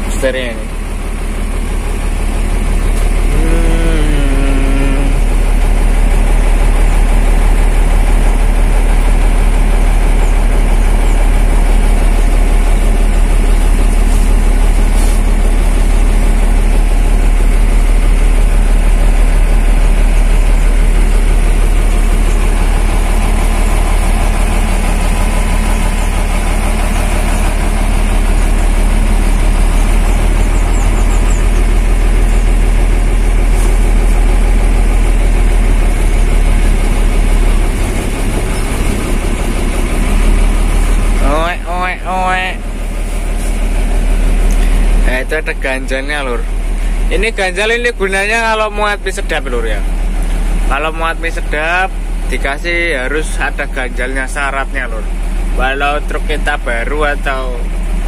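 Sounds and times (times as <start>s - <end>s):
truck diesel engine idling: 0.0s - 58.0s.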